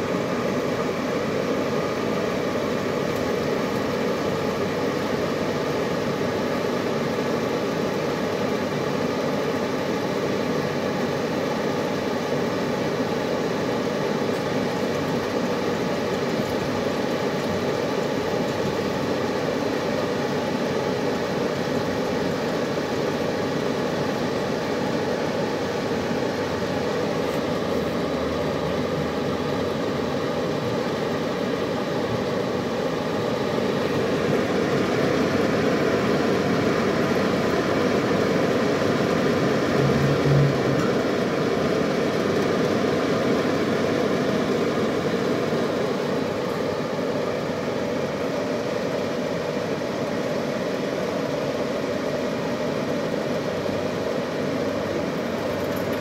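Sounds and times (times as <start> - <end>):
machine hum: 0.0 - 56.0
brief low tone: 39.8 - 41.0.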